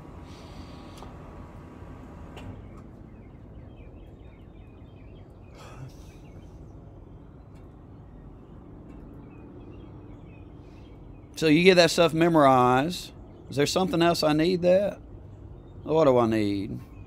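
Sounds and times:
steady low hum: 0.0s - 17.0s
faint bird chirps: 2.5s - 11.5s.

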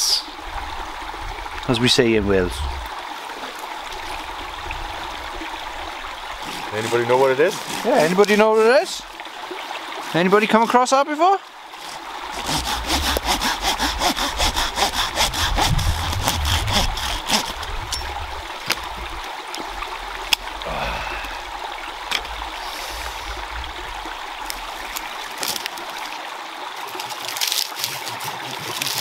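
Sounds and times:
stream flowing: 0.0s - 29.0s
hand saw cutting branch: 6.4s - 9.0s, 11.7s - 19.0s.

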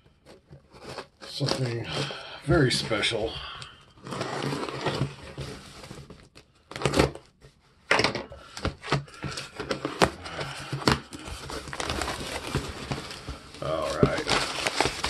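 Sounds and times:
cardboard box scraping and tearing: 0.3s - 2.0s, 4.0s - 7.2s, 9.2s - 15.0s.

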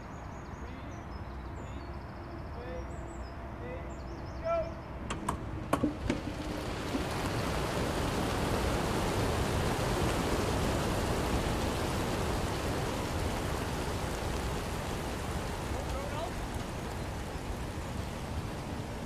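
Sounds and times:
massed pigeon wingbeats: 5.8s - 19.0s.

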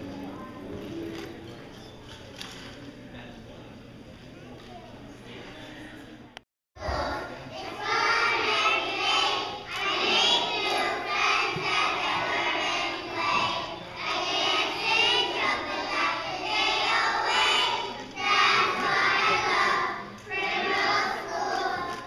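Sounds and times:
children singing together: 6.8s - 22.0s.

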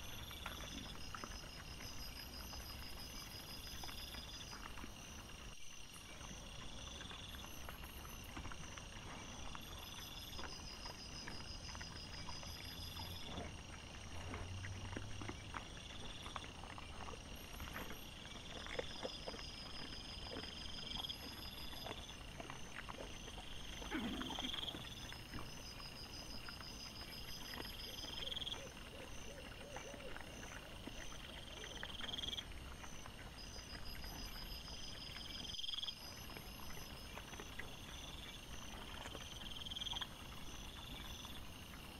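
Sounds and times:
boar grunt: 23.5s - 25.5s.

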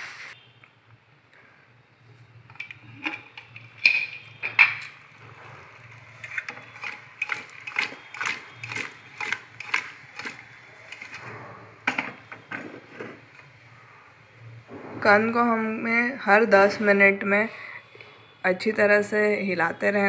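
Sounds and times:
metal pot lid clanking: 2.5s - 5.0s
food clattering in shaken pot: 5.7s - 13.4s.

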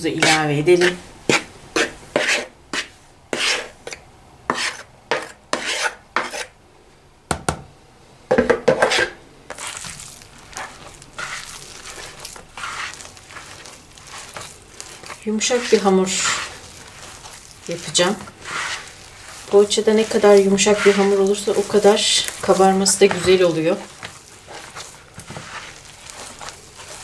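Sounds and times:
flour scraped from plastic bowl: 0.2s - 6.5s, 8.8s - 27.0s
knock: 7.3s - 7.6s
hand rubbing dough in bowl: 9.5s - 27.0s.

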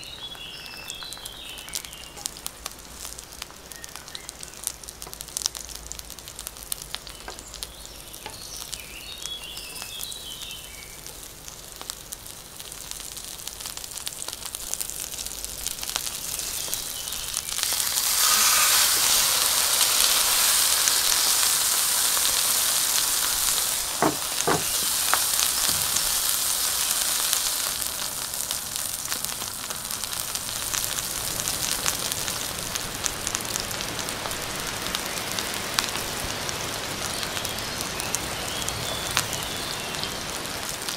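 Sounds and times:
vegetables crackling in hot oil: 0.0s - 40.9s
steak sizzling in a pan: 0.3s - 40.9s
wooden spatula knocking on pan: 24.0s - 26.0s.

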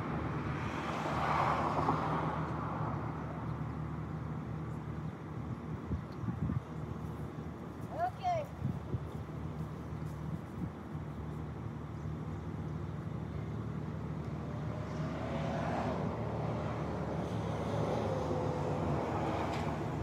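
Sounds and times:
vehicle passing on road: 0.0s - 5.7s, 8.7s - 20.0s
van passing: 9.2s - 20.0s.

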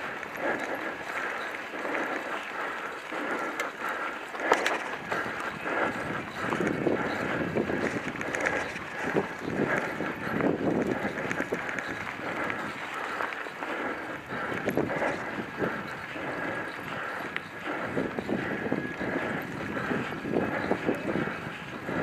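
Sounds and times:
bike tyres rumbling on dirt: 3.4s - 22.0s
wind on microphone: 4.4s - 12.9s, 13.6s - 22.0s.

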